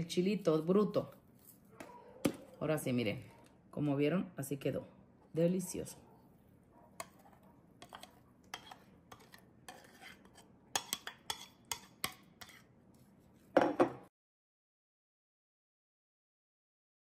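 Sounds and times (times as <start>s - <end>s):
spoon scraping glass dish: 7.0s - 12.7s.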